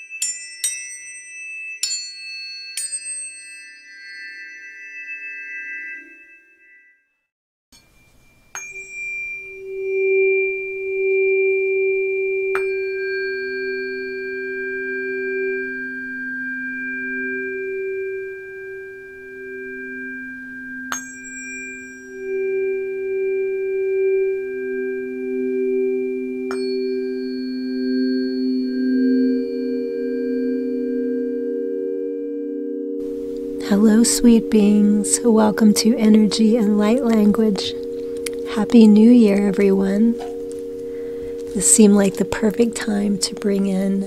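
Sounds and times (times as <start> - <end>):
tuning forks struck and ringing: 0.0 - 44.0.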